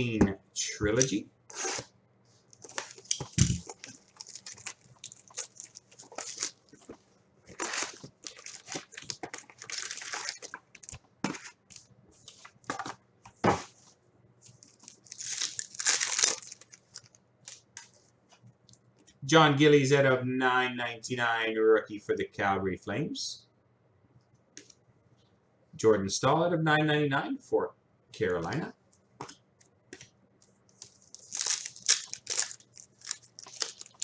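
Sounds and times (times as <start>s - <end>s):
wrappers crinkling and tearing: 2.5s - 11.0s, 14.5s - 17.7s, 30.8s - 34.0s.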